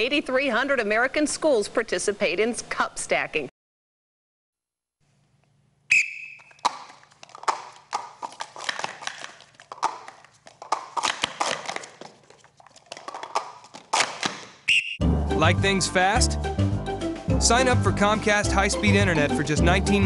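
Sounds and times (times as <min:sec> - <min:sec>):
plastic cups clacking on a table: 0:06.5 - 0:14.6.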